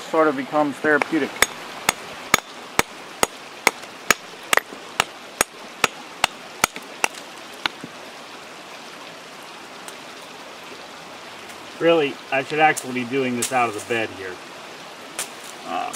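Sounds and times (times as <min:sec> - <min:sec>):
hammer knocking on stone: 0:01.0 - 0:07.9.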